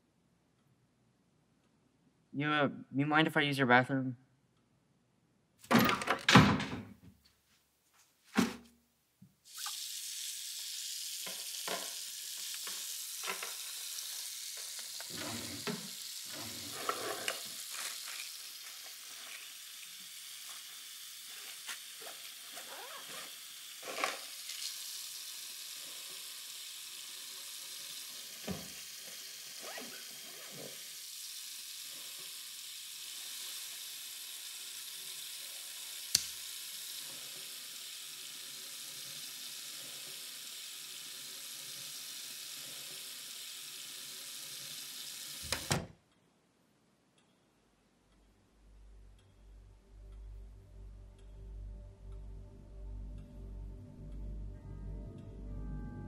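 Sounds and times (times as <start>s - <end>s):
tap running into sink: 11.2s - 13.7s, 28.4s - 28.8s.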